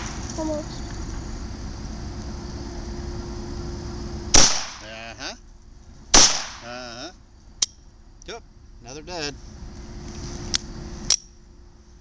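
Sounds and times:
pistol shots with echo: 4.3 - 4.9, 6.1 - 6.7.

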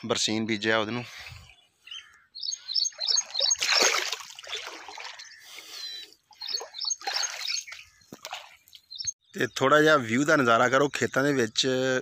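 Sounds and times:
small bird chirping: 1.2 - 9.6
water trickling and splashing: 2.9 - 8.9.

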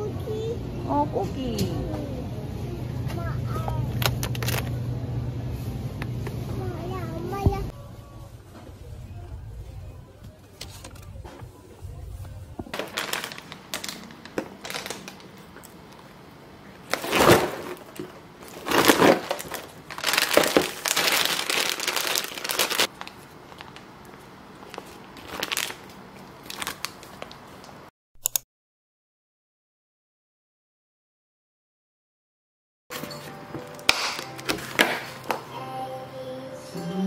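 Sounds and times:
plastic packaging crinkling: 3.9 - 4.7, 12.7 - 16.1, 16.8 - 27.8.

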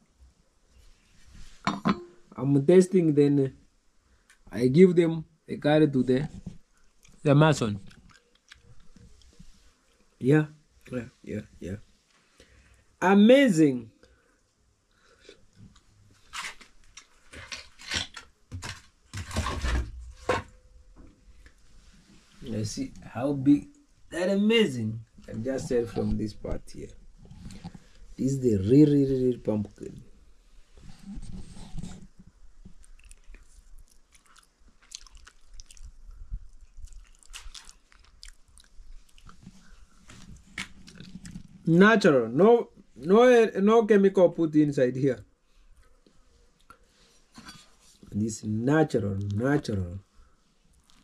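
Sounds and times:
animal chewing and biting: 32.7 - 41.6.

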